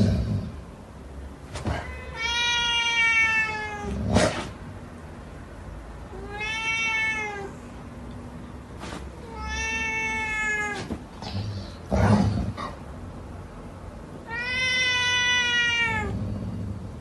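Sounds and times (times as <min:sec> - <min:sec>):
cat meowing: 0:01.7 - 0:04.0, 0:06.1 - 0:07.6, 0:09.2 - 0:11.7, 0:14.2 - 0:16.1.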